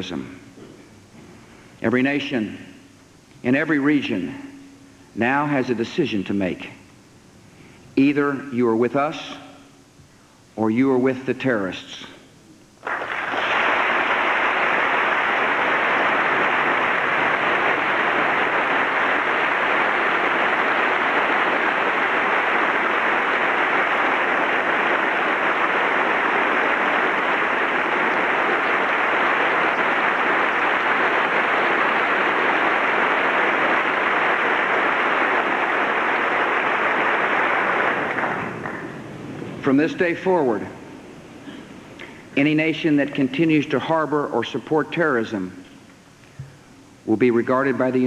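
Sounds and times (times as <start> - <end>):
large audience applauding: 12.8 - 39.3.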